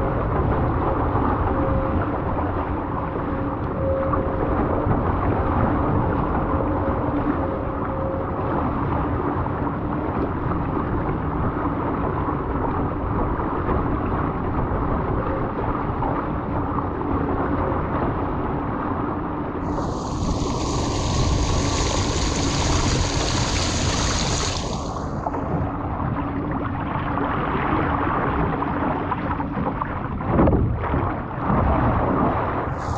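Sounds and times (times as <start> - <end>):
faint steady hum: 14.4 - 27.3, 32.6 - 32.9
high hiss of spray: 19.7 - 25.0
water rushing past a boat: 19.7 - 32.9.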